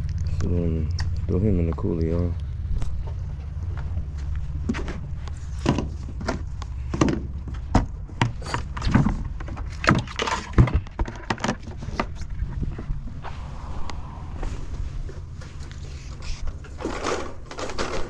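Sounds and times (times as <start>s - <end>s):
low rumble: 0.0s - 8.2s, 11.8s - 17.6s
knocks and thuds of gear handled: 5.6s - 12.2s.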